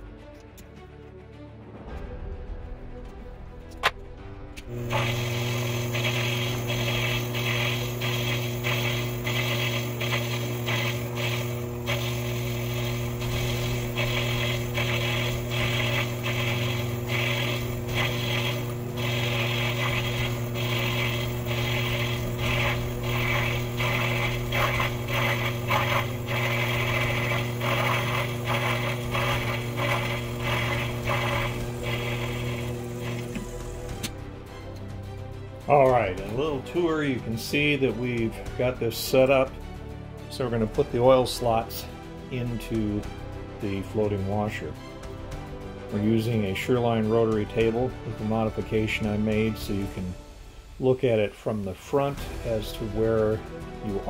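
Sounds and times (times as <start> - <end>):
lathe motor hum: 4.6 - 34.5.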